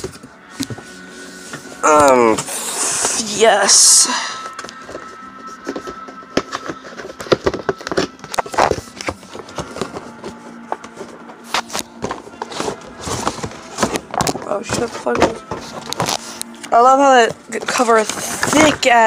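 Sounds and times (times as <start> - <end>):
plastic gear and cables handled: 4.6 - 19.0.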